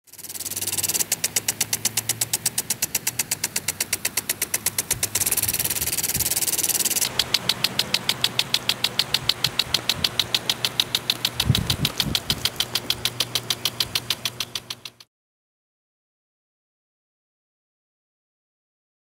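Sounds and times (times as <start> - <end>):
water spray hissing: 0.0 - 15.0
sprinkler head ticking: 0.0 - 15.1.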